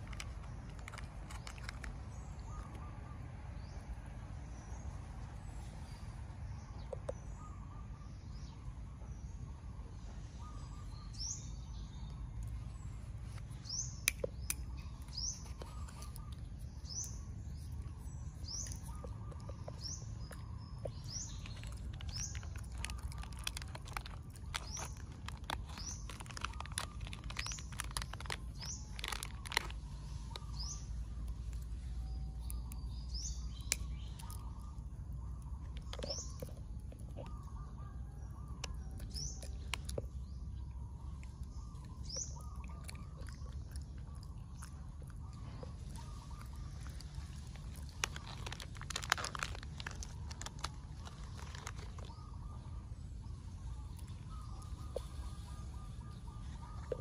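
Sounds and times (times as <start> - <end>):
small crackles and clicks: 0.0 - 2.8, 12.1 - 52.6
low outdoor rumble: 0.0 - 57.0
small birds chirping: 0.0 - 57.0.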